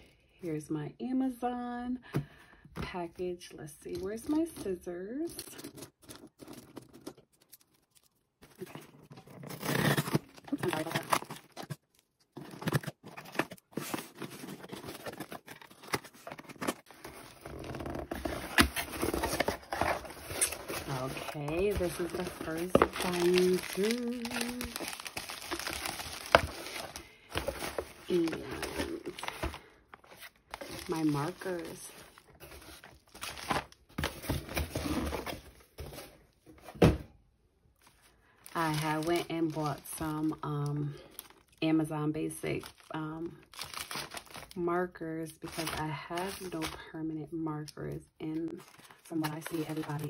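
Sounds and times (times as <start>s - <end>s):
plastic packing crinkling: 5.3s - 36.0s, 38.4s - 40.4s, 42.6s - 44.6s, 45.4s - 46.8s, 48.6s - 50.0s
cardboard box rustling: 5.3s - 37.0s, 38.5s - 40.4s, 43.5s - 44.5s, 45.5s - 46.8s.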